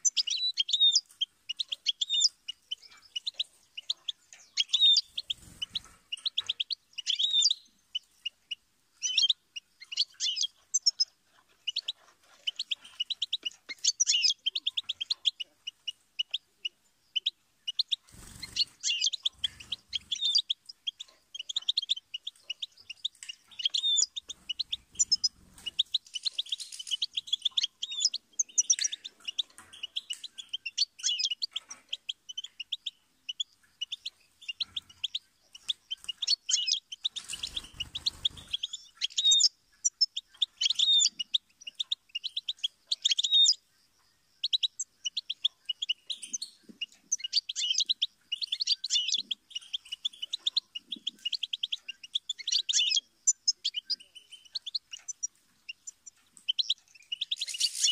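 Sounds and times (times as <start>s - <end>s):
goldfinch twittering song: 0.0s - 57.9s.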